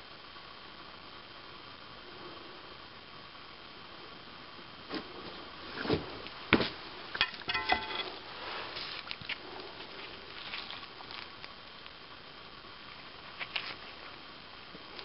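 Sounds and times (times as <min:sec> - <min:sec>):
sharp knocks and clatters: 0:07.2 - 0:08.2.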